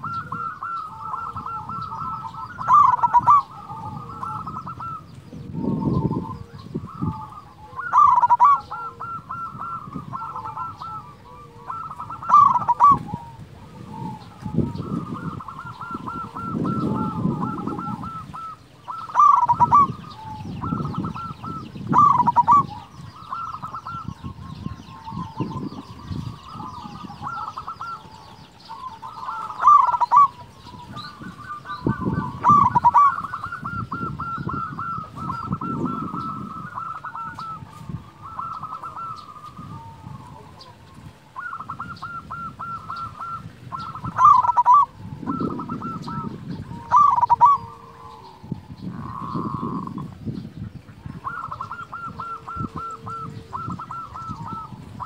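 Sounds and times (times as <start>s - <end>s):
dove trilled cooing: 0.0s - 55.0s.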